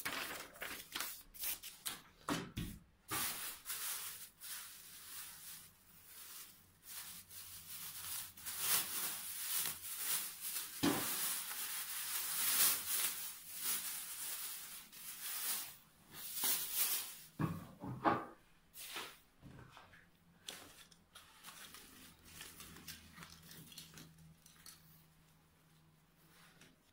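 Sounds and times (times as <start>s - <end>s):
plastic bag crinkling: 0.0s - 1.6s, 3.1s - 17.4s, 21.3s - 25.0s.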